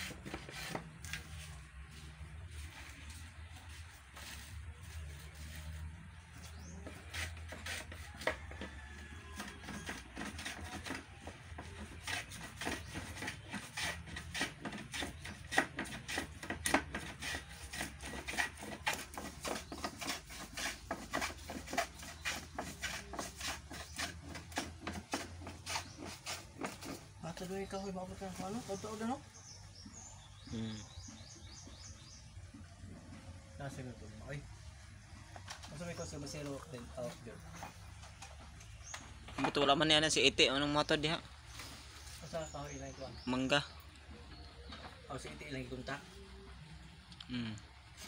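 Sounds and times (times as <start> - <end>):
hand plane scraping wood: 0.0 - 30.4.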